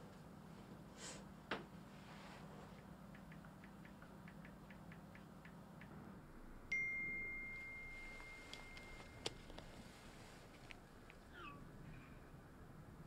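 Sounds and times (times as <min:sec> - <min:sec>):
phone notification chime: 0:06.7 - 0:09.2.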